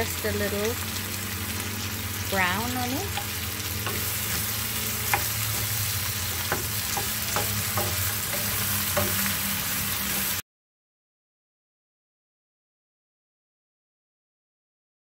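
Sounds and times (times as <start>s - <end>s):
chicken sizzling in oil: 0.0s - 10.4s
wooden spoon tapping pan: 3.0s - 9.4s.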